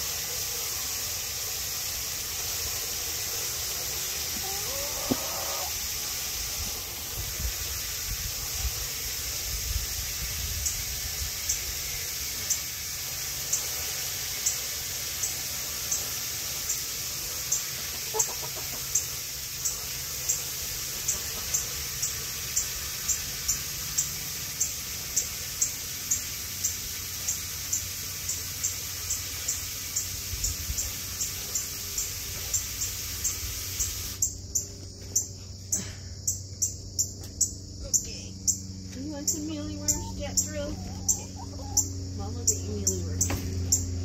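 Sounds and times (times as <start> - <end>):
steady hiss: 0.0 - 34.6
chicken clucking: 4.0 - 5.8, 17.8 - 19.1, 39.3 - 41.9.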